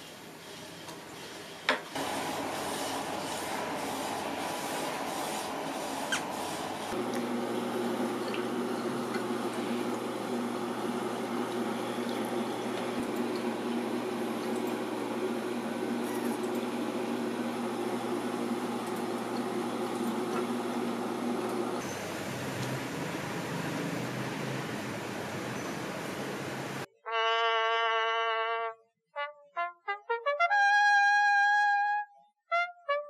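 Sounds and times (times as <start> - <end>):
low pump hum: 2.0 - 26.9.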